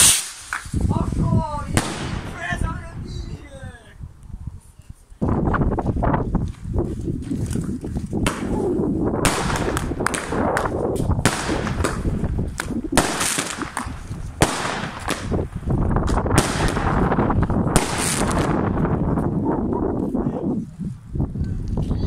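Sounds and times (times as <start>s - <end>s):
firework reports: 0.0s - 4.0s, 8.2s - 19.1s.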